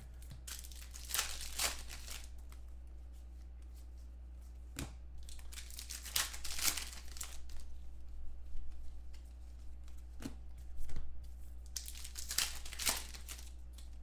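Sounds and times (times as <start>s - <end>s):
plastic wrappers crinkling and tearing: 0.1s - 2.6s, 5.2s - 7.8s, 11.6s - 14.0s.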